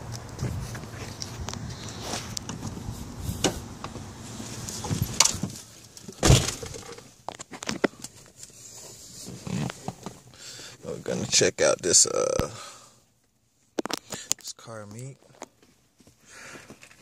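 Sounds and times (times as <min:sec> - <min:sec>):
car door slamming: 0:04.8 - 0:07.0.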